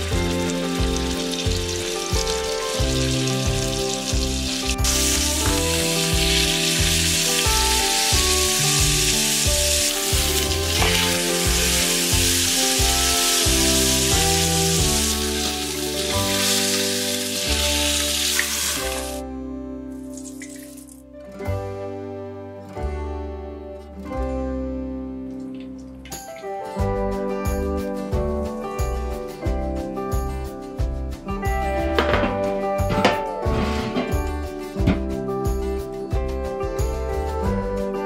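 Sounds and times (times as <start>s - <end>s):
beef sizzling in hot oil: 0.0s - 19.2s
background music: 0.0s - 38.0s.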